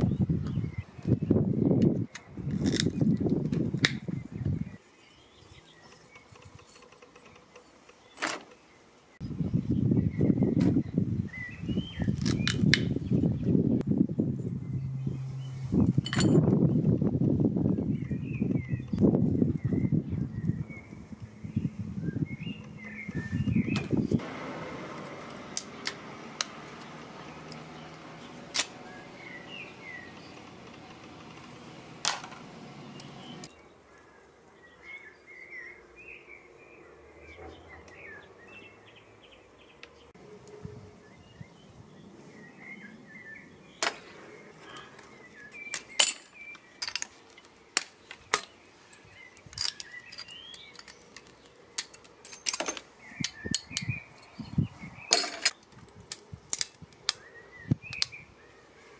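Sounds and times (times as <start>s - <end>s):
faint birds chirping: 0.0s - 24.4s, 25.0s - 58.9s
low hum: 13.3s - 33.7s
pliers clicking and snapping parts: 49.4s - 53.9s.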